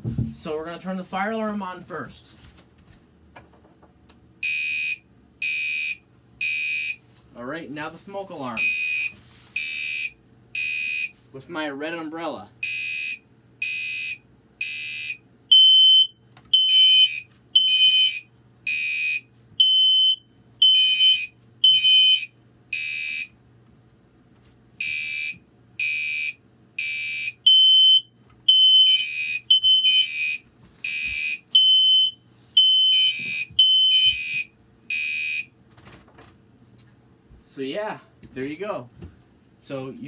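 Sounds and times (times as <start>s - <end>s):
fire alarm horn buzzy beeps: 4.4s - 7.0s, 8.6s - 11.2s, 12.6s - 23.4s, 24.8s - 35.5s
smoke alarm beeping: 4.4s - 7.0s, 8.6s - 11.1s, 12.6s - 23.3s, 24.8s - 35.5s.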